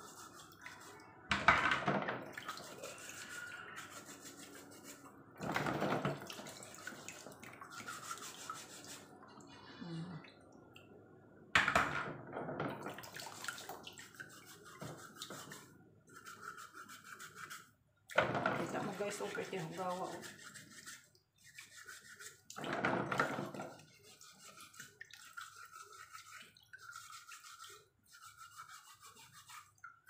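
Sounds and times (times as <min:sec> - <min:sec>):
scouring pad scrubbing shells: 0:02.4 - 0:05.1, 0:14.0 - 0:17.7, 0:18.6 - 0:22.8
water dripping: 0:06.1 - 0:11.2, 0:29.8 - 0:30.0.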